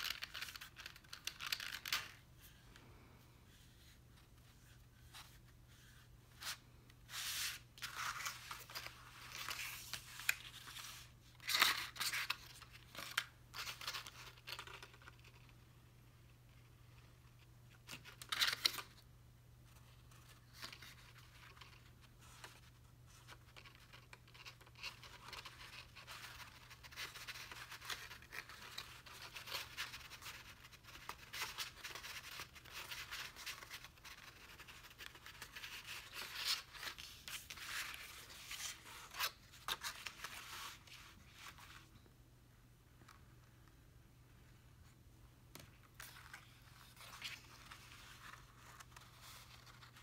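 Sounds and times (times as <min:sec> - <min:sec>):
card stock rustling and rubbing: 0:03.5 - 0:15.4, 0:19.7 - 0:41.8, 0:45.7 - 0:50.0.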